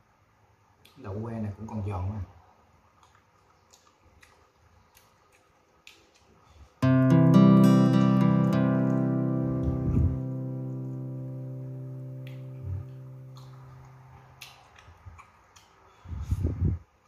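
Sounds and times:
strummed guitar chord ringing: 0:06.8 - 0:13.8.

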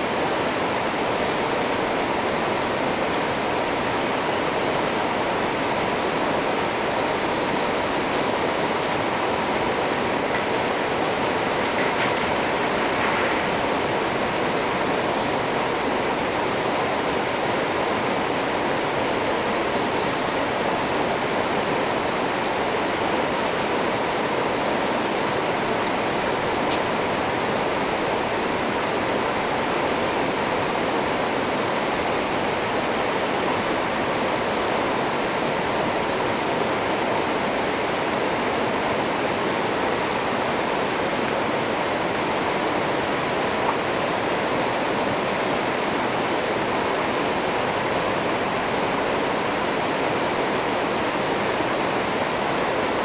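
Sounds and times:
river rapids rushing over rocks: 0:00.0 - 0:53.0.

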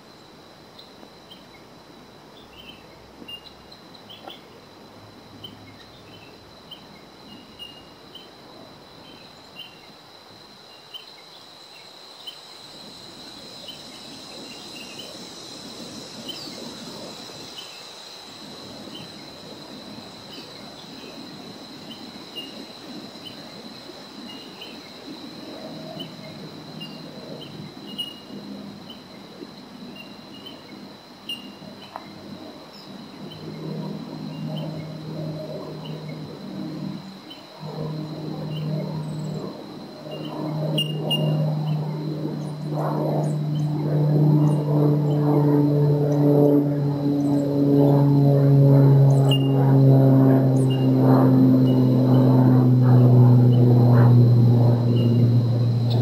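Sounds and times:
high-pitched insect trill: 0:00.0 - 0:56.0
wind noise: 0:37.7 - 0:56.0.

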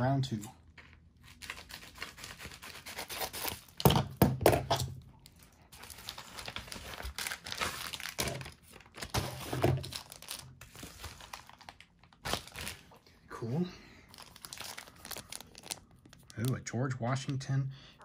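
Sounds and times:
paper and plastic tearing: 0:01.2 - 0:03.8, 0:05.8 - 0:12.8.

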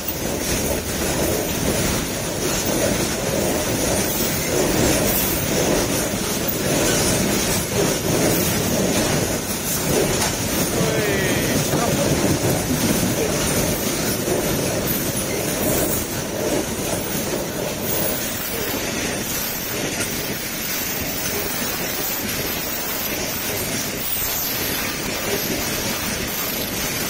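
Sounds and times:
freight train rolling past: 0:00.0 - 0:27.0.

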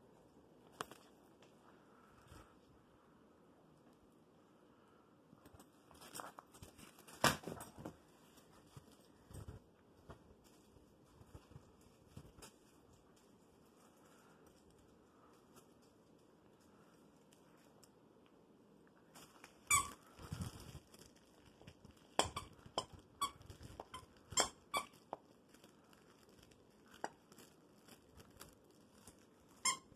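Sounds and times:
dog toy squeaking: 0:22.2 - 0:25.0, 0:29.6 - 0:29.9.

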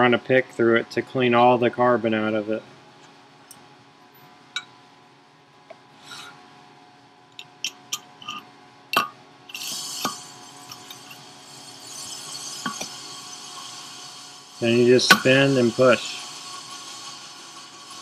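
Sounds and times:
metal-on-metal rub: 0:06.0 - 0:06.4, 0:07.4 - 0:08.5, 0:09.5 - 0:18.0.

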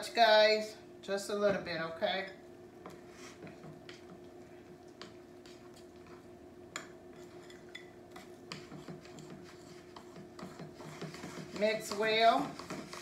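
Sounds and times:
faint steady hum: 0:00.0 - 0:13.0
utensil scraping glass bowl: 0:07.1 - 0:13.0.

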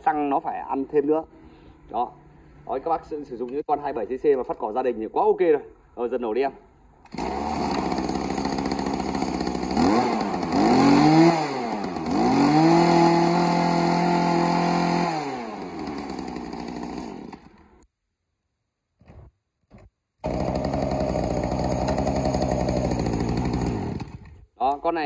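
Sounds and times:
brush cutter engine revving: 0:07.1 - 0:17.8, 0:20.2 - 0:24.5
short noises: 0:19.0 - 0:24.6.

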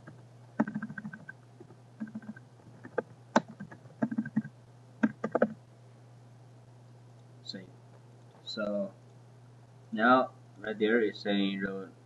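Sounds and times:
keyboard typing: 0:00.0 - 0:01.4, 0:02.0 - 0:05.6.

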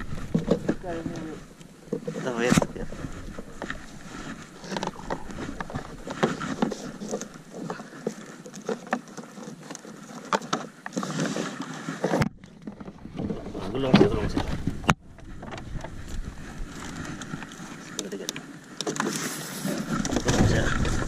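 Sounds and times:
wet rope knocking and rubbing: 0:01.9 - 0:18.1.

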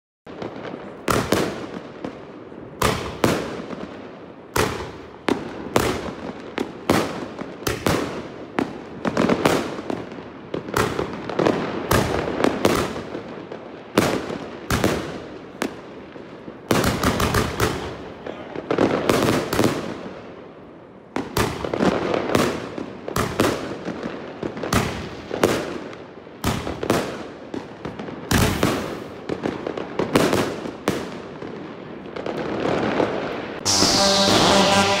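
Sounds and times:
firework cake bangs: 0:00.5 - 0:01.8, 0:02.8 - 0:03.7, 0:04.5 - 0:09.8, 0:10.6 - 0:13.1, 0:28.2 - 0:31.1.

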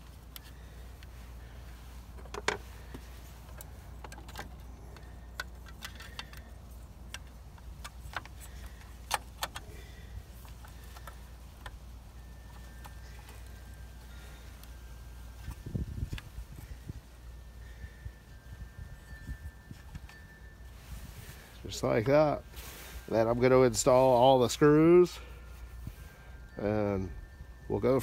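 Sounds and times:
steady low rumble: 0:00.0 - 0:28.0
headlight clicking and knocking: 0:07.1 - 0:09.7.

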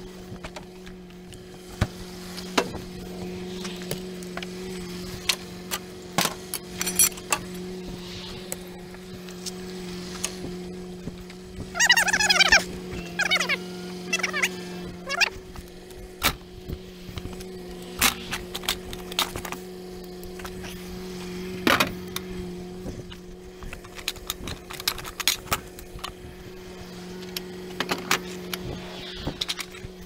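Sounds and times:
metal clanks and clicks: 0:23.1 - 0:26.2.

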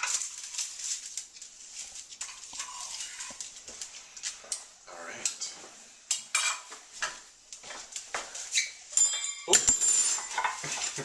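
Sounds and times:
ringing clink: 0:09.0 - 0:10.4.

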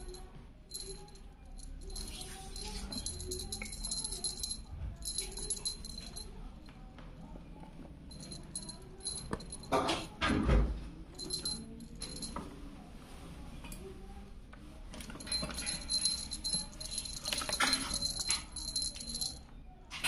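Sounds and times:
small jingle bell tinkling: 0:00.0 - 0:06.5, 0:08.1 - 0:10.2, 0:11.1 - 0:12.4, 0:15.0 - 0:19.5.

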